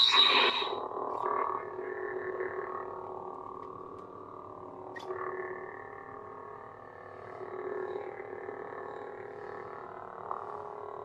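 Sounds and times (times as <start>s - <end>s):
lightsaber electric hum: 0.0s - 4.0s.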